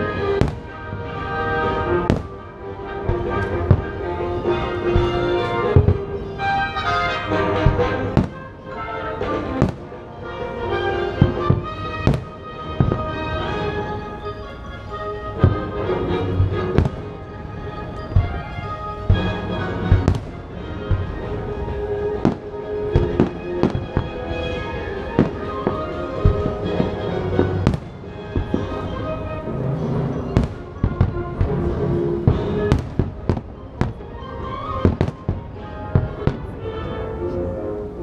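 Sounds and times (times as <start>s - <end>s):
fireworks bursting bangs: 0.0s - 36.6s
fireworks show music: 0.0s - 38.0s.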